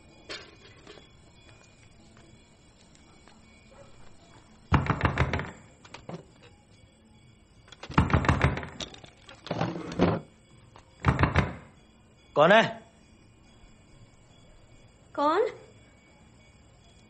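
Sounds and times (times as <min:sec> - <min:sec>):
heavy knocks on a door: 0:04.7 - 0:05.6, 0:07.9 - 0:08.8, 0:11.0 - 0:11.7.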